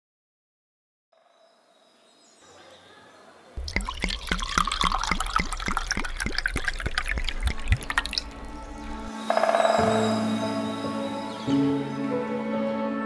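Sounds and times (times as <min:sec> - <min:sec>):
water dripping and trickling: 0:03.6 - 0:09.1.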